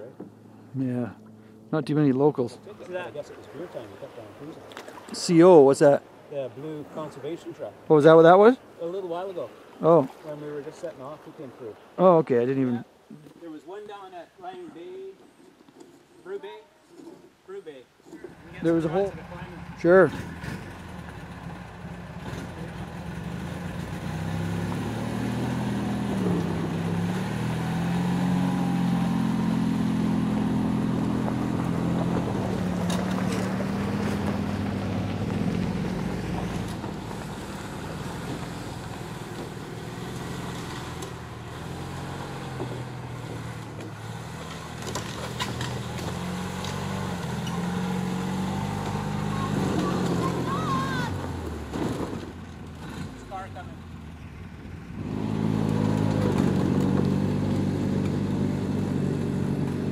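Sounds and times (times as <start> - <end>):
tires on gravel: 0.0 - 59.9
atv engine running: 18.2 - 59.9.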